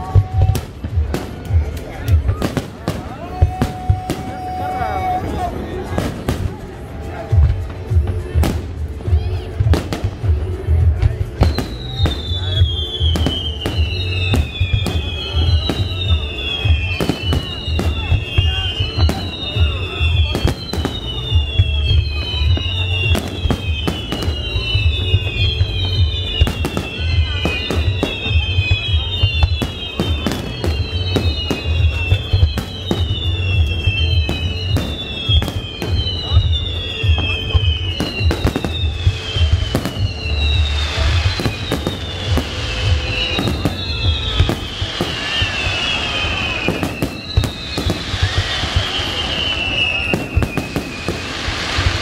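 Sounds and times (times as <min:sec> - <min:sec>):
fireworks bursting with sharp bangs: 0:00.0 - 0:52.0
high whistling descending tones: 0:11.4 - 0:52.0.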